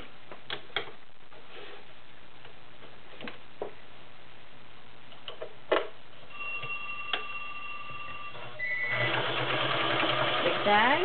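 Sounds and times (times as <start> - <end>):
faint steady high tone: 6.3 - 8.9
sewing machine running: 8.6 - 11.0.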